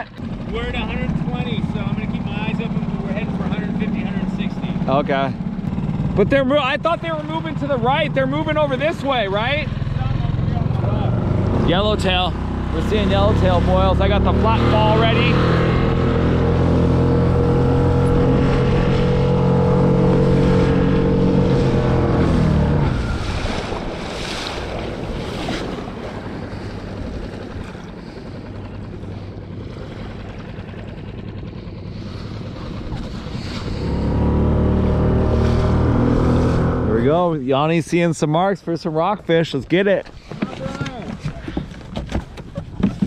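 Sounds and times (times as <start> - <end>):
small outboard motor running: 0.0 - 43.0
wind and water hiss over hull: 17.3 - 31.0, 31.6 - 43.0.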